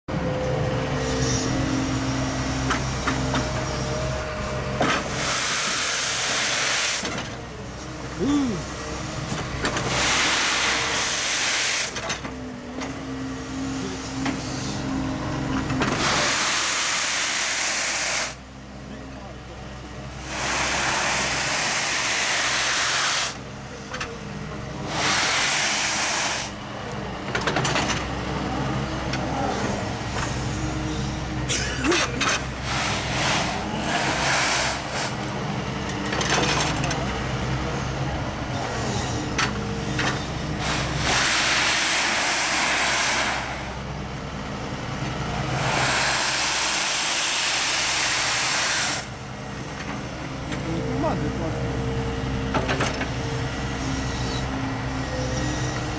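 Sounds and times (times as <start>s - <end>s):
excavator engine whining: 0.1s - 55.9s
loud hydraulic hiss: 4.8s - 7.4s, 8.2s - 12.2s, 15.9s - 18.4s, 20.1s - 23.5s, 24.8s - 26.6s, 29.6s - 35.4s, 39.8s - 44.0s, 45.4s - 49.8s.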